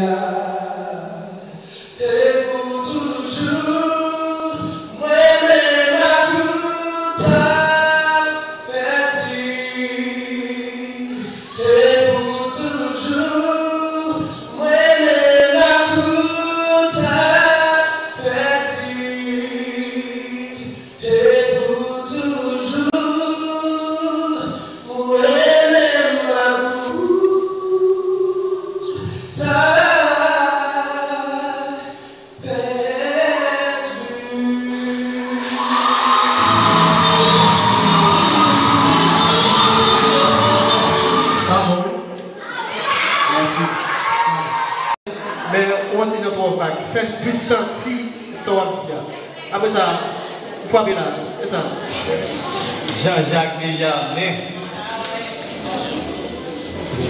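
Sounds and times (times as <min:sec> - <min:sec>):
man singing into microphone: 0:00.0 - 0:42.3
singer breathing: 0:01.5 - 0:02.0, 0:11.2 - 0:11.6.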